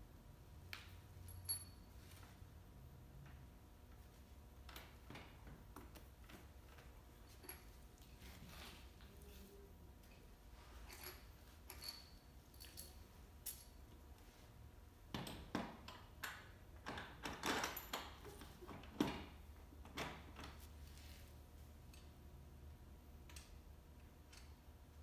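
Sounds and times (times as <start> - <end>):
hand tools clicking and clinking: 10.8 - 13.8.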